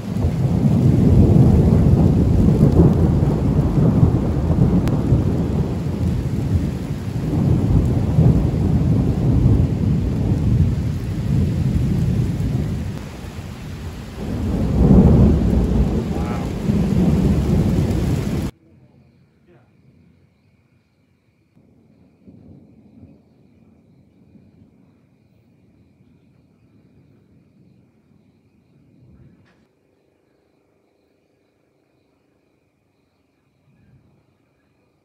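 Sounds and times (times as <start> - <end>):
rain falling: 0.0 - 18.6
thunder rumbling: 0.0 - 18.6, 21.6 - 29.5.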